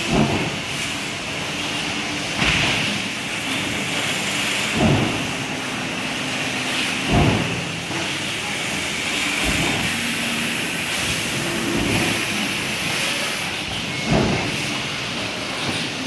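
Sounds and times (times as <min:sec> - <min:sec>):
hiss and hum of machinery: 0:00.0 - 0:16.0
stamping press thud: 0:02.4 - 0:03.1, 0:04.7 - 0:05.5, 0:07.0 - 0:08.0.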